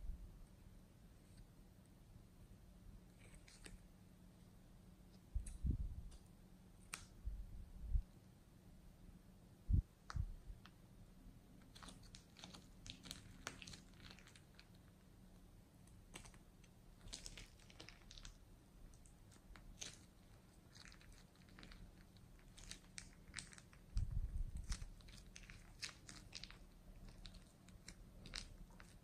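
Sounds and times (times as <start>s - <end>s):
plastic bag crinkling: 11.7s - 14.8s, 17.0s - 18.4s, 19.3s - 29.0s.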